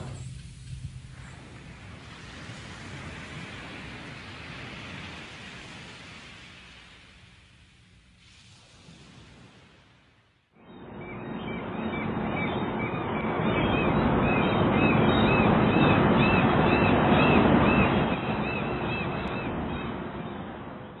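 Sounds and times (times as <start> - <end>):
steady rushing noise: 10.6 - 21.0.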